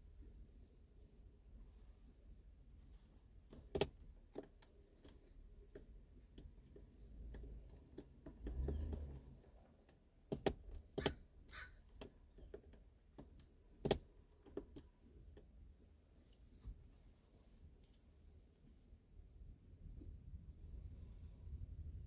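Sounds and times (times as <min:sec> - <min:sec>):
wind rumble on microphone: 0:19.8 - 0:22.0.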